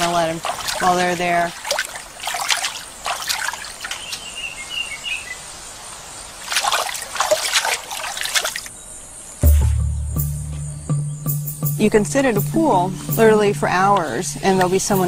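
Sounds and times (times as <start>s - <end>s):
water splashing and trickling: 0.0s - 4.6s, 6.3s - 8.8s, 11.6s - 15.0s
bird chirping: 3.8s - 5.5s, 8.7s - 15.0s.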